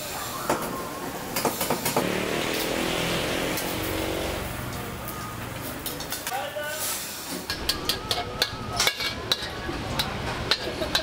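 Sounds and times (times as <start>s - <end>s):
noodles frying in oil: 0.0s - 8.2s
vehicle engine passing by: 2.0s - 5.8s.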